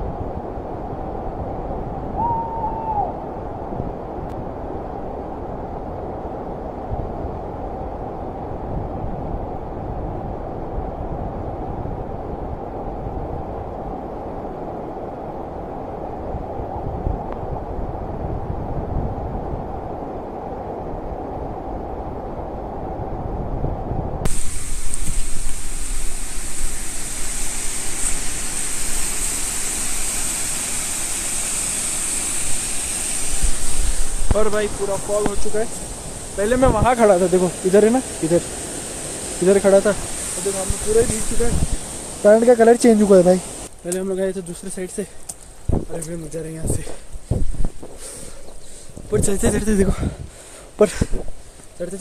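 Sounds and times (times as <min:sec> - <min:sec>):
waterfall roaring: 0:24.3 - 0:45.0.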